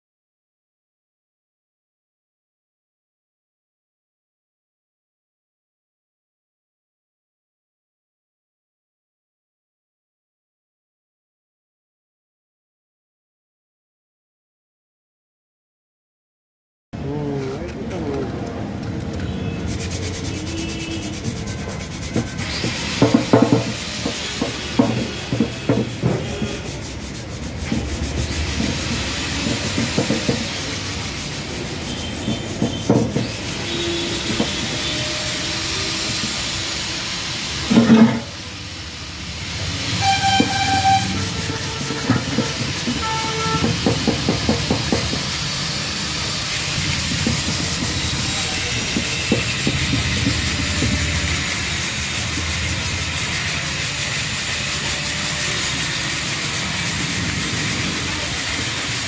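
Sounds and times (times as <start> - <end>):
sandpaper rubbing over paint: 18.8 - 38.6, 39.2 - 59.0
knocks: 22.2 - 26.4, 32.2 - 33.3.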